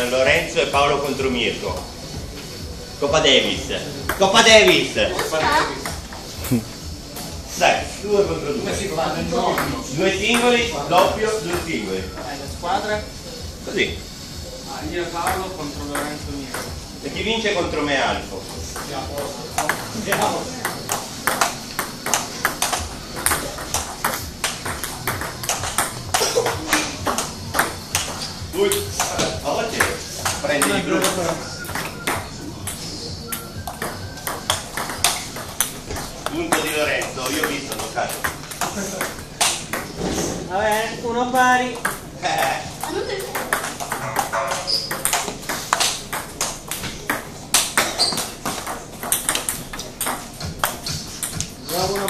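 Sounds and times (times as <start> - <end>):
table tennis ball clicking: 18.7 - 39.9, 40.7 - 52.0.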